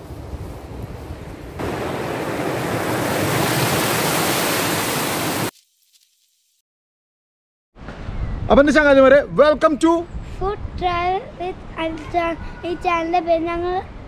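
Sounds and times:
wind noise on microphone: 0.0s - 1.6s, 7.8s - 14.0s.

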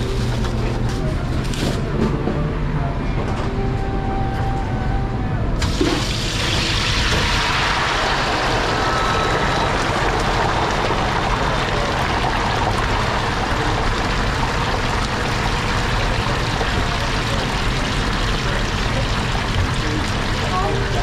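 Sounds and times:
oil bubbling and sizzling: 5.6s - 21.0s.

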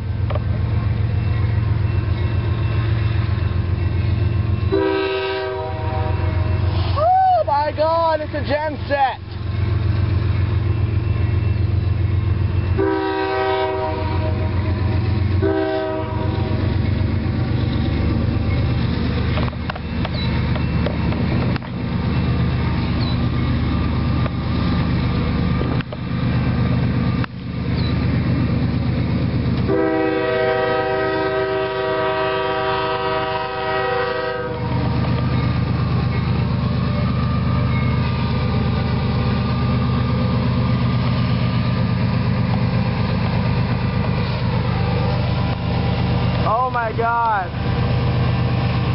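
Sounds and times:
diesel engines rumbling: 0.0s - 48.9s
train rolling past: 0.0s - 48.9s
locomotive air horn: 4.7s - 6.9s, 12.8s - 16.7s, 29.6s - 34.9s.

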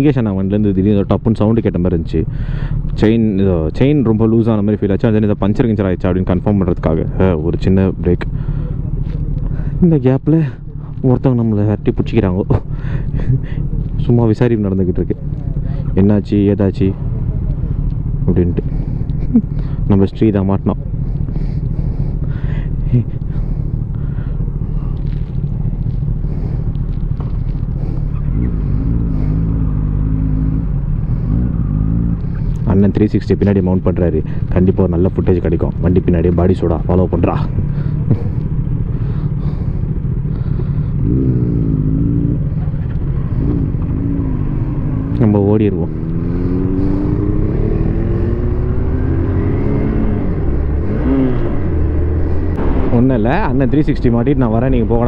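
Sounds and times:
motorcycle engine idling: 0.0s - 47.7s
pitched engine hum: 0.0s - 55.0s
wind and road noise: 0.0s - 55.0s
motorcycle engine pulling away: 23.3s - 32.6s, 37.0s - 53.8s.

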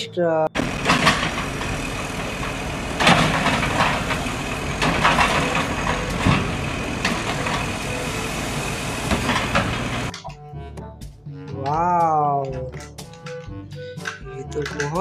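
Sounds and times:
garbage truck engine running: 0.0s - 15.0s
clattering knocks: 0.6s - 10.4s.

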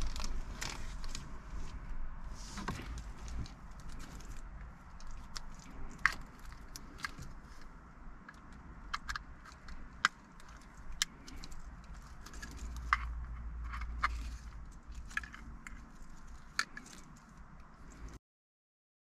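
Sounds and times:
plastic bag crinkling: 0.0s - 1.3s
plastic plugs clicking and rattling: 2.6s - 18.2s.

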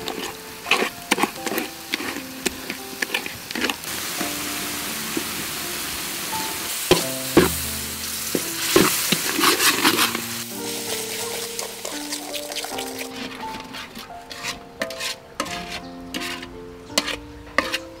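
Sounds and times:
metal spoon scraping a pan: 0.0s - 5.5s, 6.4s - 18.0s
sauce sizzling in a pan: 0.0s - 18.0s
spoon knocking on pan: 6.9s - 7.7s, 17.0s - 17.8s.

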